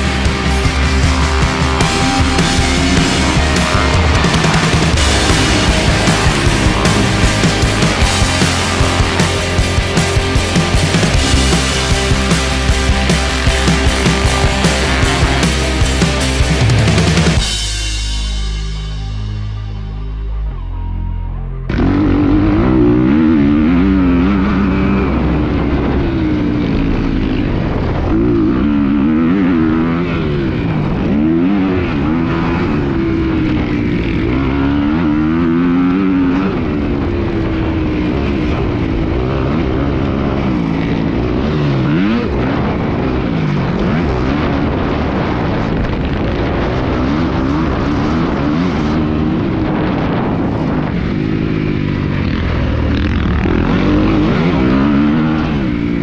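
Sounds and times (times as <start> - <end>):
dirt bike engine revving: 0.0 - 20.1, 21.7 - 56.0.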